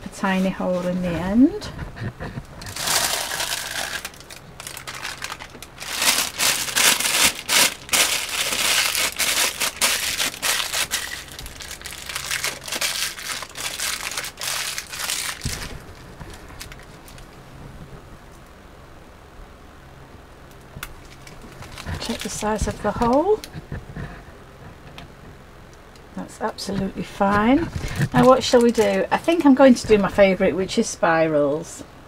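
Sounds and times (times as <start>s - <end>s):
plastic bag crinkling: 2.6s - 17.4s, 20.8s - 23.5s, 27.6s - 29.5s.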